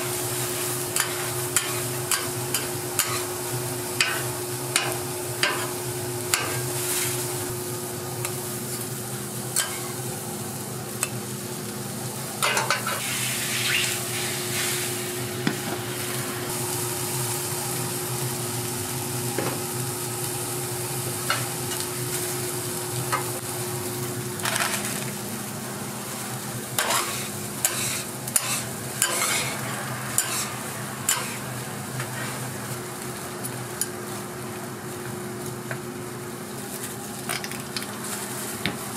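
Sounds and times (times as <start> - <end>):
eggs sizzling on a griddle: 0.0 - 15.5, 16.5 - 38.9
metal spatula scraping griddle: 12.5 - 14.9, 26.8 - 31.4.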